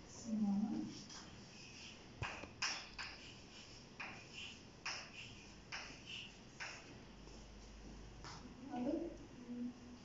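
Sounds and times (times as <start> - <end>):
chalk strokes on chalkboard: 0.8 - 6.8.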